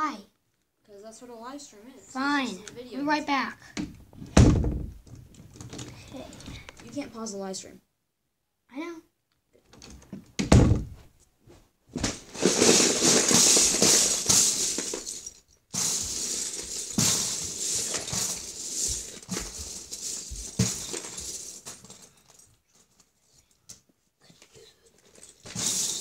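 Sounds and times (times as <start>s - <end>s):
heavy thump: 3.8s - 5.2s, 10.4s - 11.1s
plastic bricks clattering: 12.1s - 22.4s, 25.0s - 26.0s.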